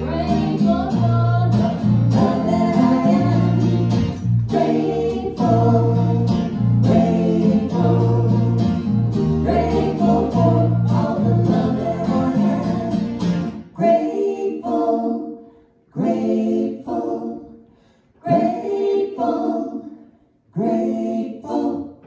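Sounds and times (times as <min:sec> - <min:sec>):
bass guitar: 0:00.0 - 0:13.6
acoustic guitar: 0:00.0 - 0:19.9
people singing: 0:00.0 - 0:22.0.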